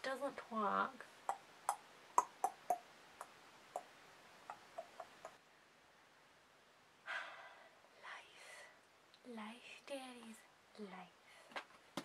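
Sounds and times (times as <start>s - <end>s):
mouth clicks: 1.2s - 5.4s
breathy exhale: 7.1s - 7.8s.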